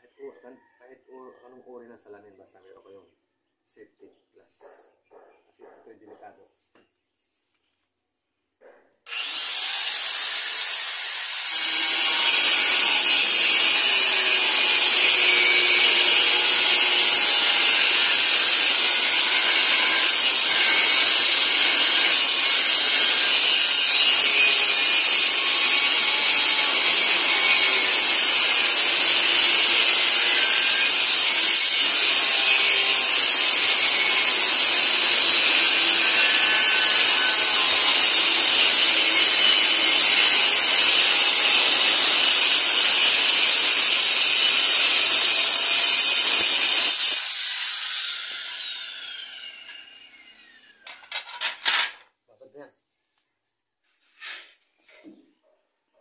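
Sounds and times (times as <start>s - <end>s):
angle grinder cutting tile: 9.1s - 52.0s.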